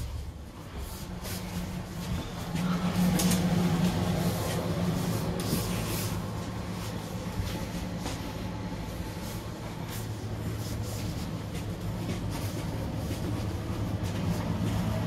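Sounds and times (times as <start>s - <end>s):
train electrical hum and rumble: 0.0s - 15.0s.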